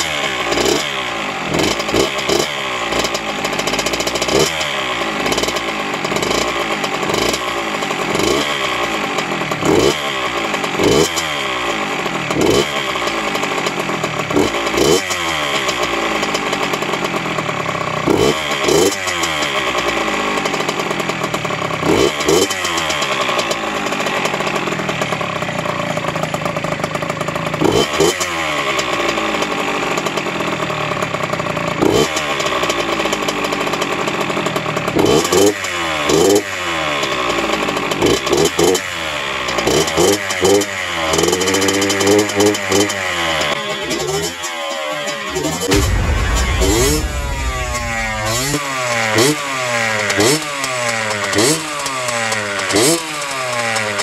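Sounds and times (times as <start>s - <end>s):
two-stroke engine revving: 0.0s - 25.0s, 27.2s - 30.2s.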